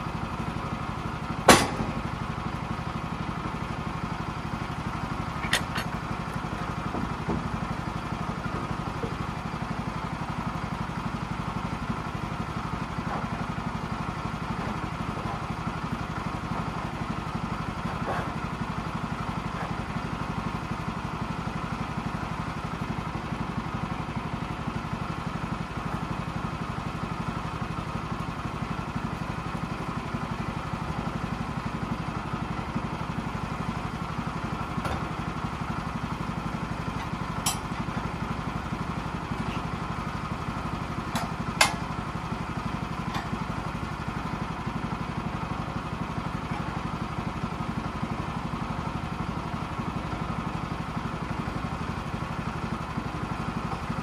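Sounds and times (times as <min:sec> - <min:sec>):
gasoline engine idling: 0:00.0 - 0:54.0
sharp metal clanks: 0:01.5 - 0:01.9.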